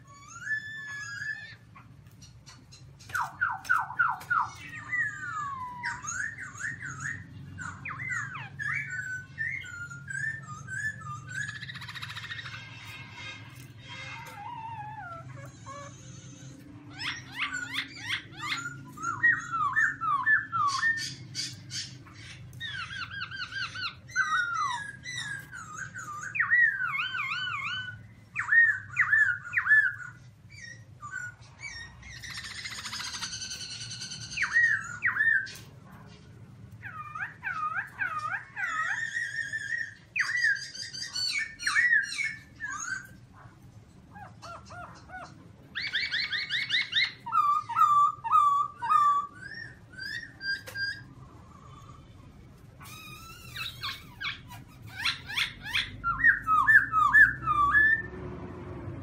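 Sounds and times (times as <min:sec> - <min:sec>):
laughingthrush singing whistled phrases: 0:00.0 - 0:12.6, 0:52.8 - 0:58.1.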